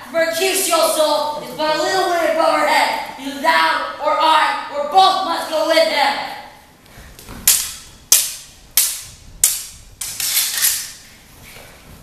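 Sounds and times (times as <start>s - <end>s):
swords clashing: 7.4s - 11.0s.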